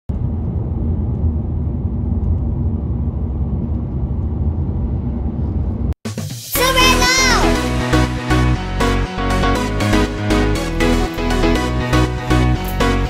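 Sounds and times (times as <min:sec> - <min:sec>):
car road and engine rumble: 0:00.1 - 0:06.0.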